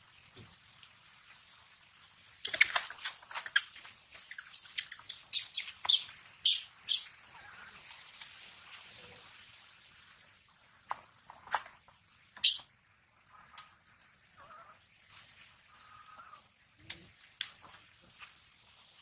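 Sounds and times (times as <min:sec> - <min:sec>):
monkey squeaking: 0:04.5 - 0:07.2, 0:12.4 - 0:12.6.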